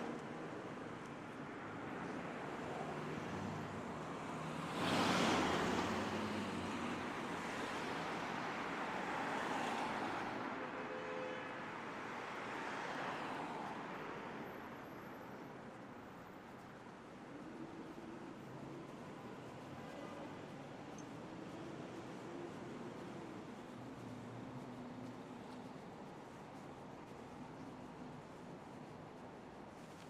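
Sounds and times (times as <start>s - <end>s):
passing cars tyre and engine noise: 0.0s - 30.0s
car passing close: 2.8s - 8.0s.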